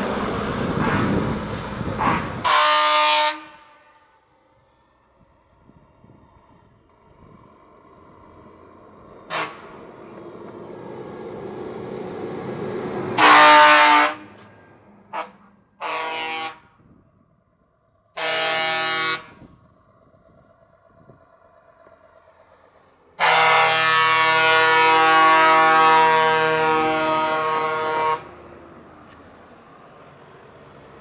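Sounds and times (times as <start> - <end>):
truck engine approaching: 0.0 - 31.0
truck air horn blasts: 2.0 - 4.2, 9.3 - 9.8, 13.2 - 14.5, 15.1 - 16.9, 18.2 - 19.5, 23.2 - 28.3.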